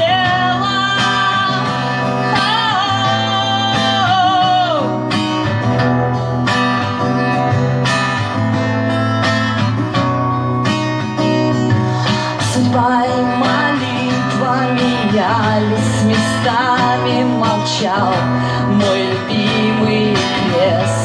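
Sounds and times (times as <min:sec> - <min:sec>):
woman singing with vibrato: 0:00.0 - 0:05.2, 0:11.9 - 0:21.0
acoustic guitar strumming: 0:00.0 - 0:21.0.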